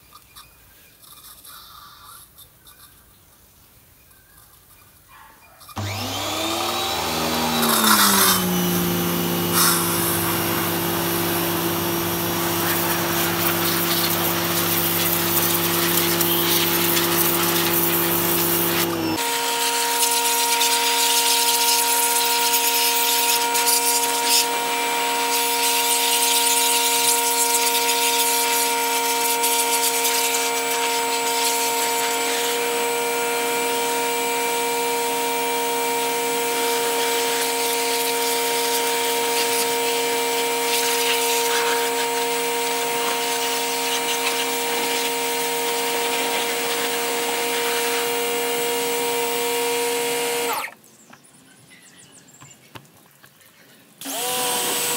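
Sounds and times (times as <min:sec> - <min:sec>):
pressure washer pump whine: 0:05.8 - 0:50.8, 0:54.0 - 0:54.9
water jet hissing: 0:06.8 - 0:19.3.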